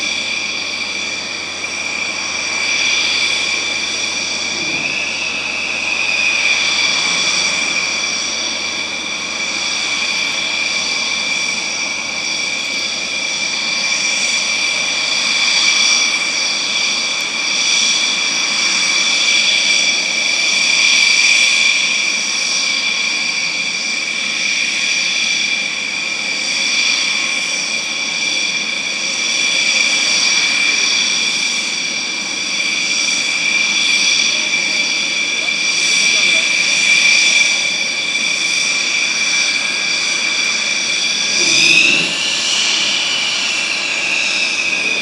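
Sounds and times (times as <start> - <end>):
jet engines whining: 0.0 - 45.0.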